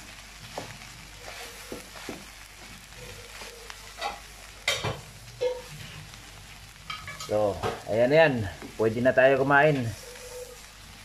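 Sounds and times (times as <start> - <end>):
rice sizzling in a wok: 0.0 - 11.0
spatula scraping and knocking pan: 0.5 - 2.4, 3.0 - 6.0, 6.8 - 7.8.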